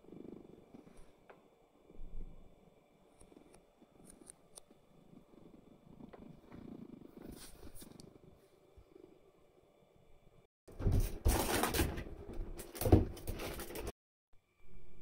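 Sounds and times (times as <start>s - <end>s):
cat purring: 0.0s - 9.6s.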